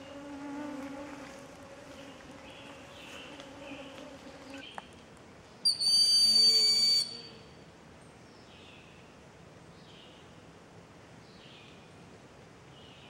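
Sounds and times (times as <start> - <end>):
insect hum: 0.0 - 9.2
hawk whistling call: 5.7 - 7.4.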